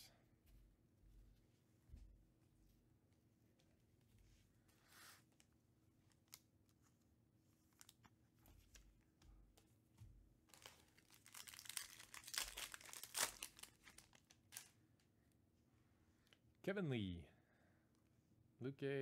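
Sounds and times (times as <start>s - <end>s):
foil pack crinkling and tearing: 10.5s - 14.7s.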